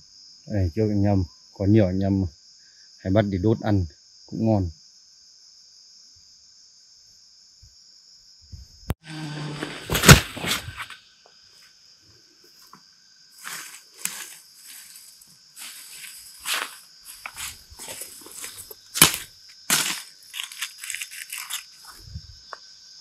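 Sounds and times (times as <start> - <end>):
high-pitched insect call: 0.0 - 23.0
rustling: 9.4 - 11.0, 13.4 - 22.0.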